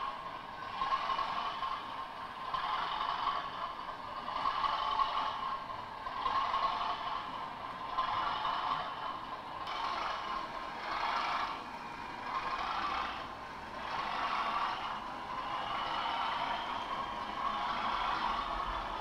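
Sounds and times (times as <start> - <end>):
model train motor running: 0.0 - 19.0
wheels rolling on rails: 0.0 - 19.0.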